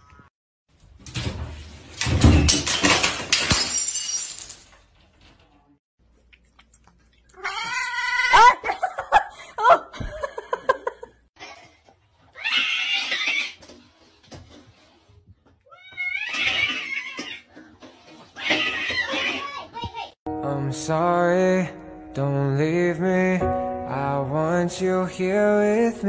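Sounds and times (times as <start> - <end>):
cat yowling: 7.4 - 8.6, 15.7 - 17.4.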